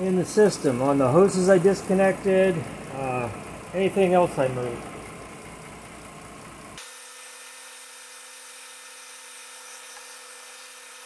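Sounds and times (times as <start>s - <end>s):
car engine idling: 0.0s - 6.8s
steady whine: 0.0s - 6.8s
hiss: 7.2s - 11.0s.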